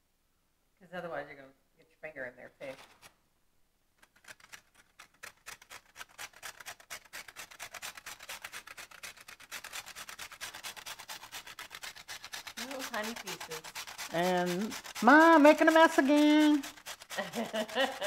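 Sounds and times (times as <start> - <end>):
cookie scraping on grater: 4.0 - 18.0.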